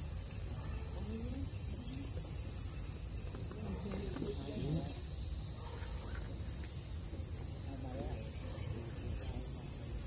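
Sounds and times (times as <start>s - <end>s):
high-pitched insect chorus: 0.0s - 10.0s
faint voices: 7.4s - 10.0s.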